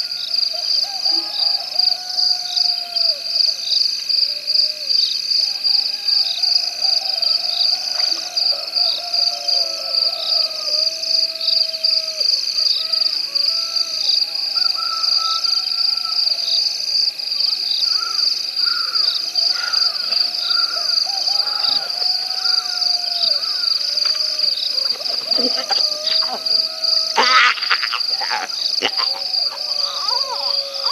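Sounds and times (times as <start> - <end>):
high-pitched insect trill: 0.0 - 30.9
animal calls: 17.9 - 30.9.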